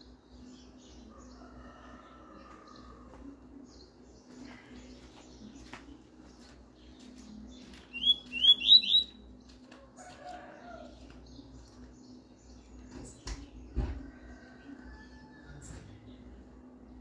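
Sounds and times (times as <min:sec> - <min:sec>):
bird whistling rising notes: 0:07.9 - 0:09.2.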